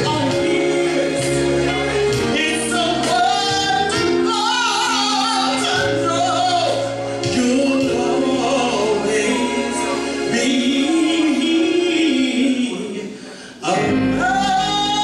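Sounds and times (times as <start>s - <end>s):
backing music with bass: 0.0s - 13.0s, 13.7s - 15.0s
woman singing into microphone: 2.4s - 12.8s.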